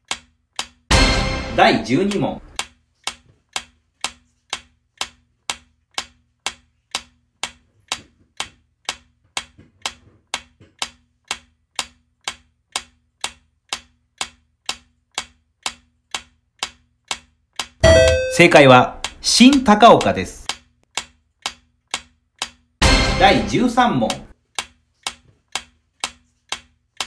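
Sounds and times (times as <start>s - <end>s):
clock-like timer ticking: 0.0s - 27.0s.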